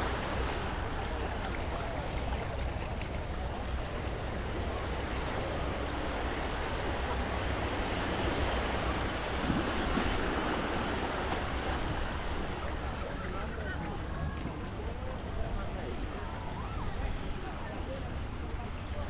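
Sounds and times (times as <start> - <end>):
sea waves on sandy beach: 0.0 - 13.2.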